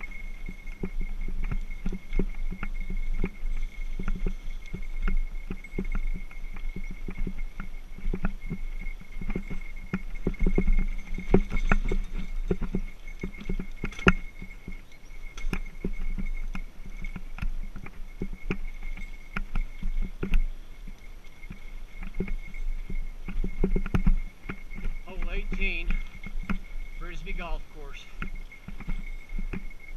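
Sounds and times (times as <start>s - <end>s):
bike frame rattling over bumps: 0.0s - 29.9s.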